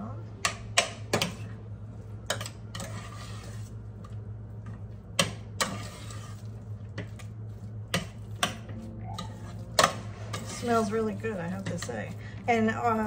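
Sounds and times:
metal spoon scraping saucepan: 2.3 - 3.8, 5.6 - 7.3, 7.9 - 12.7
low hum: 3.3 - 13.0.

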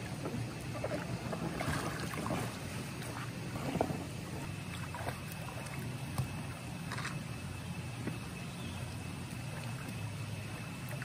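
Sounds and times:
pool water splashing: 0.0 - 11.0.

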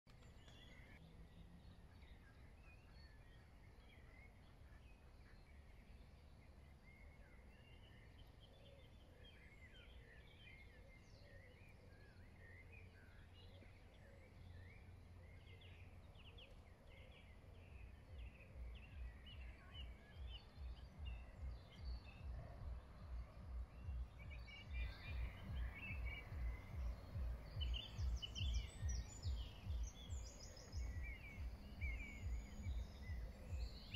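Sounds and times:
songbirds chirping: 0.0 - 33.9
faint outdoor hiss: 0.1 - 33.9
low regular thumping: 20.6 - 33.9.

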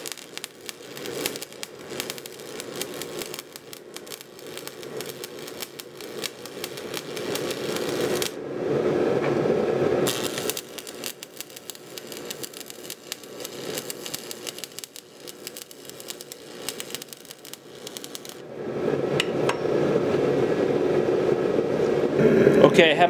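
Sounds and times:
welding arc crackling: 0.0 - 8.4, 10.0 - 18.5.

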